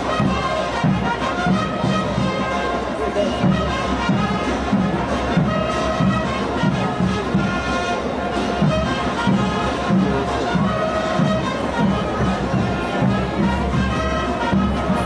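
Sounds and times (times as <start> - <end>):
cymbals: 0.0 - 15.0
street brass band playing: 0.0 - 15.0.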